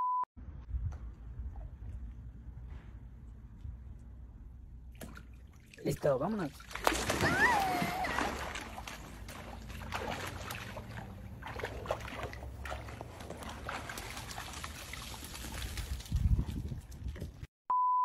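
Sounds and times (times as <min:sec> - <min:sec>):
water sloshing and trickling: 0:04.8 - 0:17.5.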